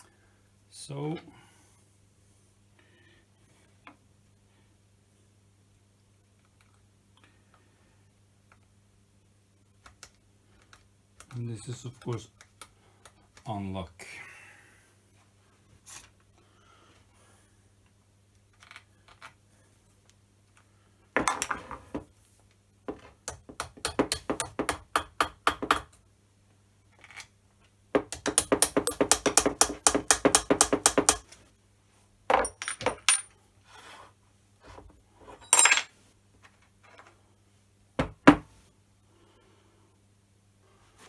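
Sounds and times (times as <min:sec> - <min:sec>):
hammer tapping on steel: 0:28.1 - 0:31.2.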